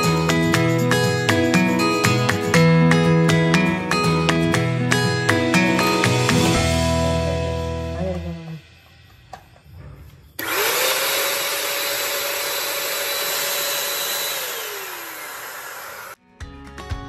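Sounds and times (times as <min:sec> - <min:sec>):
guitar music: 0:00.0 - 0:08.6
vacuum cleaner motor whining: 0:10.4 - 0:16.2.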